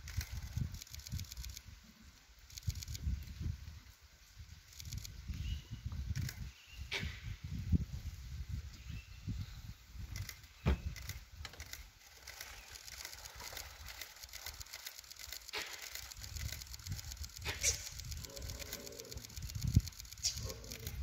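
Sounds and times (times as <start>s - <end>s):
light rapid clicking: 0.1s - 1.7s, 2.5s - 3.3s, 4.7s - 5.2s, 10.1s - 21.0s.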